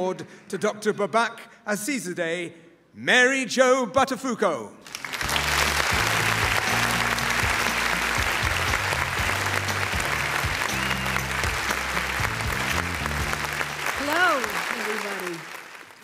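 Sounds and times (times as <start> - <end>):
audience applauding: 4.8 - 16.0
walk-on music with bass line: 5.2 - 13.9.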